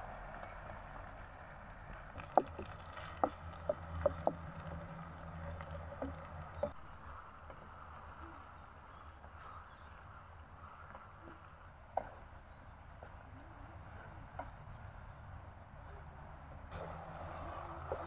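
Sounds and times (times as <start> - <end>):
wooden spatula scraping metal pot: 2.2 - 6.8, 16.7 - 18.0.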